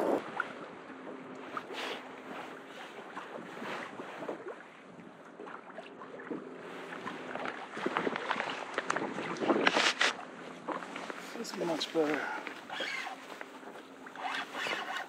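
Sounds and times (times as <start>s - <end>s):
wind on microphone: 0.0s - 0.7s, 6.3s - 11.0s
water lapping against kayak: 0.0s - 15.0s.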